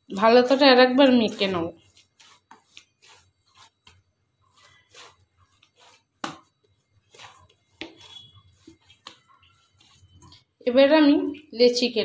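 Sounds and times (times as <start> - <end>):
dough thudding and squishing: 0.2 - 10.6.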